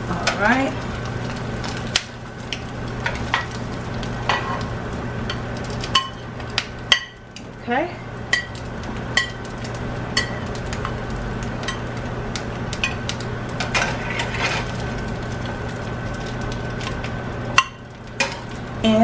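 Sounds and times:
oil sizzling faintly: 0.0 - 19.0
steady hum: 0.0 - 19.0
spatula scraping and tapping pan: 4.2 - 4.7, 13.6 - 14.8.

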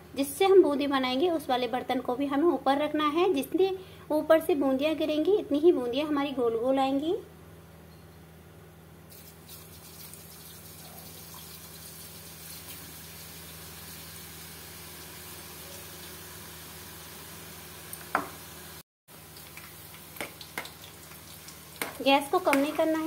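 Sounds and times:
batter sizzling in hot oil: 9.1 - 23.0.

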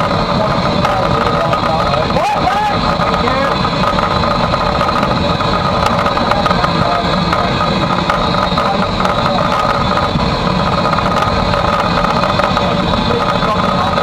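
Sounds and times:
steam locomotive cab rumble and hiss: 0.0 - 14.0.

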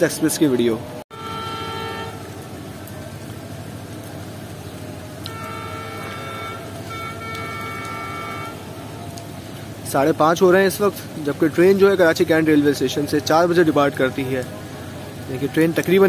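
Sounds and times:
steady rain hiss: 0.0 - 16.0
train horn blasts: 1.1 - 2.4, 5.2 - 8.7.

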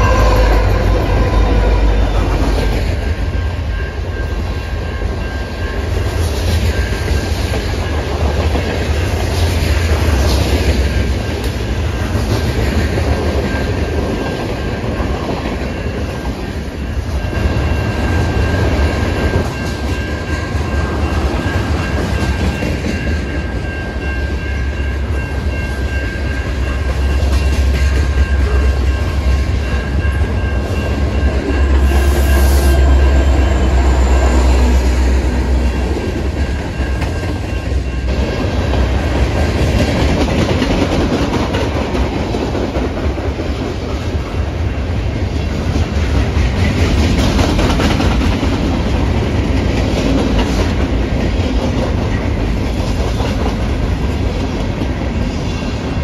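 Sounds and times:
freight train wheels rumbling on rail: 0.0 - 56.0
faint high ringing: 22.9 - 38.1.

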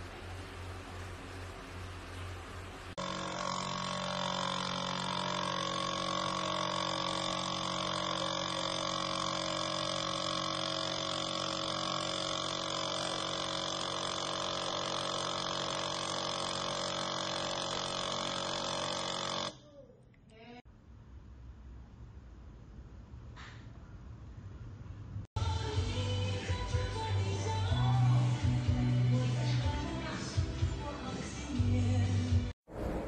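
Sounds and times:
coffee machine pump buzzing: 0.0 - 19.6.

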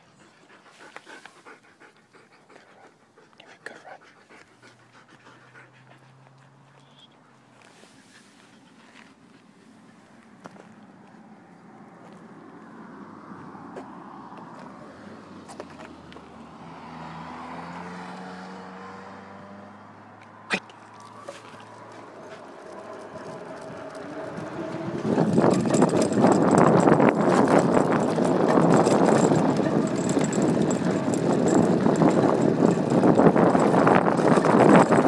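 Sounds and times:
faint passing road traffic: 0.0 - 35.0
wheels rattling over dirt trail: 20.8 - 35.0.

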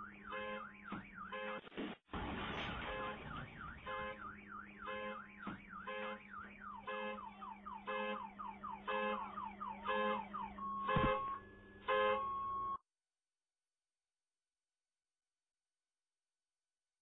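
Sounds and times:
car alarm beeping and whooping: 0.0 - 1.6, 2.7 - 12.8.

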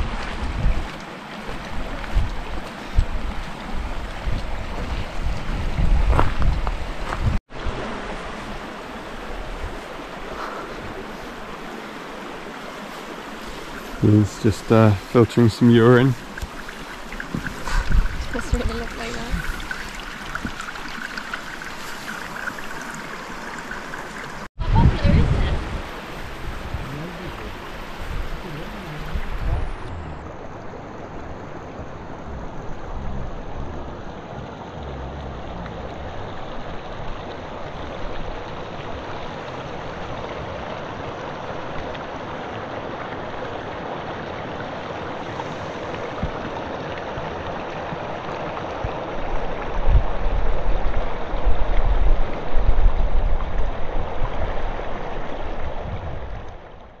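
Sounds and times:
stream water running: 0.0 - 57.0
low rumbling: 24.6 - 40.7.

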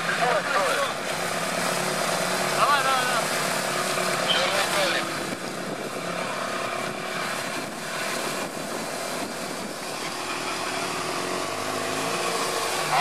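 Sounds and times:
off-road vehicle engines droning: 0.0 - 13.0.

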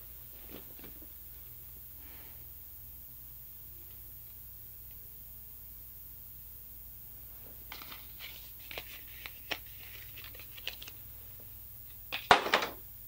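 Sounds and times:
cardboard packaging crinkling: 7.7 - 11.0.

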